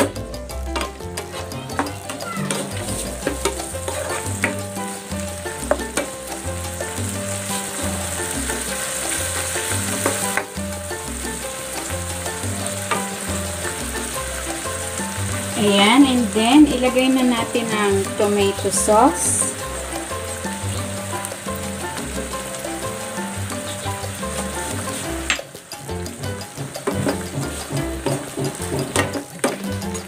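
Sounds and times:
food sizzling in oil: 0.0s - 30.0s
spatula scraping a pan: 0.7s - 6.2s.

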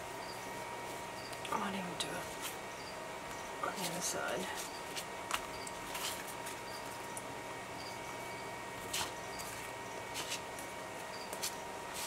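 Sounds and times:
paper rustling: 4.6s - 6.6s, 8.8s - 10.7s.

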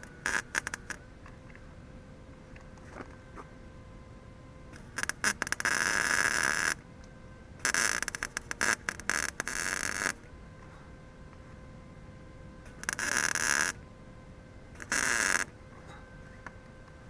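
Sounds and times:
welding arc crackling and sputtering: 0.0s - 1.0s, 4.7s - 6.8s, 7.6s - 10.3s, 12.6s - 13.8s, 14.7s - 15.6s.

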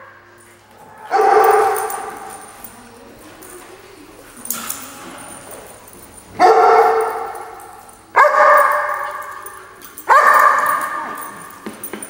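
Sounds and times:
dog barking: 1.0s - 2.5s, 6.4s - 11.5s.

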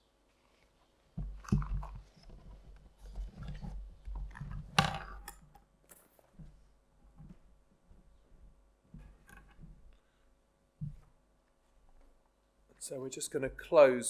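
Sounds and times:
books and papers rustling: 0.2s - 4.8s, 5.8s - 10.1s.

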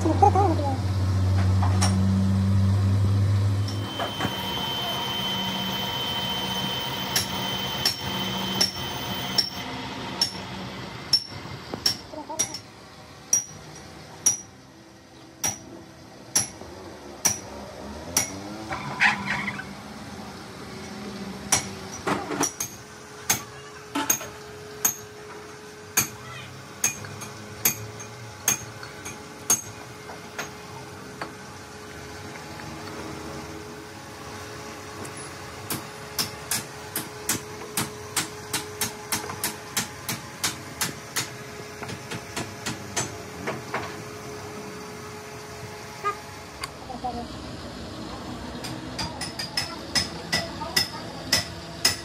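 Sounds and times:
lathe motor humming: 3.6s - 11.0s.

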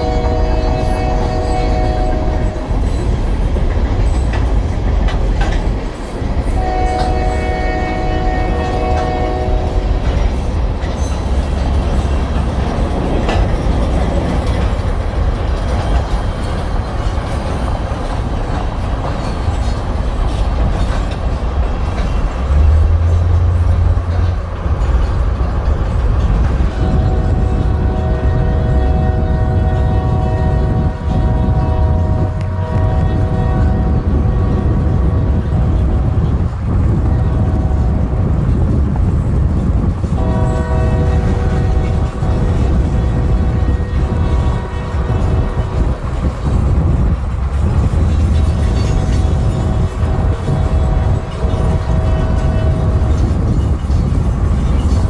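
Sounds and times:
train air horn chord: 0.0s - 2.7s, 6.6s - 9.9s, 26.7s - 35.6s, 40.1s - 45.8s, 49.6s - 53.2s.

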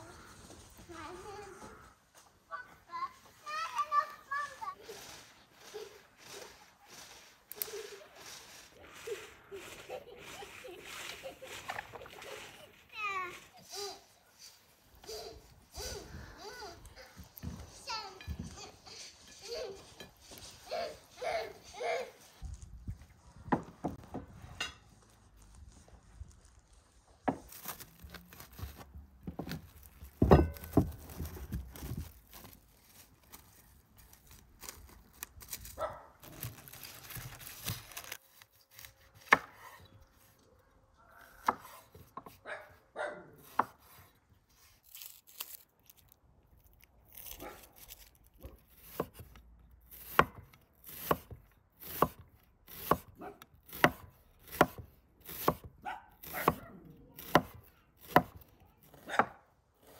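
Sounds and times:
knife slicing onion on wooden board: 38.4s - 39.9s, 41.4s - 42.4s, 43.4s - 44.1s, 47.2s - 59.9s.

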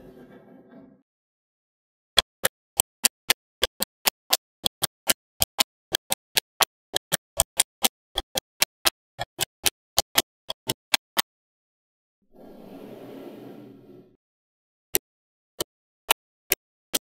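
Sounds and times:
magnetic balls clicking together: 2.2s - 11.3s, 15.6s - 17.0s.

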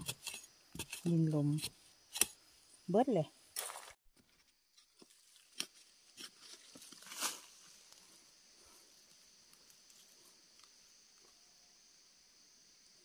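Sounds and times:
hand spade scraping dry soil: 0.0s - 2.4s, 3.6s - 7.6s.

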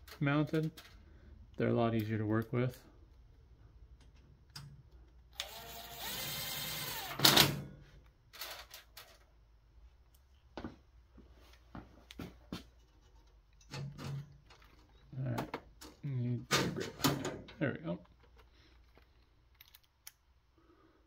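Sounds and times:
cordless drill whirring: 5.4s - 7.2s.

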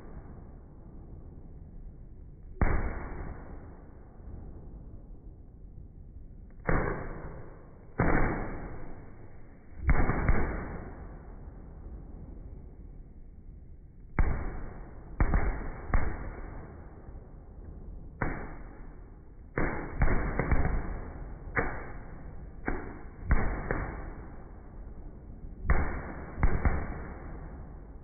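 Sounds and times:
fireworks bursting with loud bangs: 6.6s - 11.0s, 14.2s - 16.7s, 18.2s - 24.4s, 25.6s - 27.8s.

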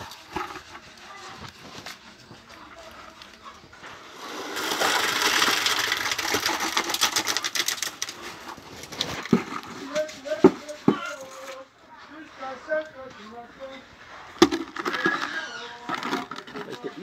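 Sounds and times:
wet concrete pouring: 3.7s - 17.0s.

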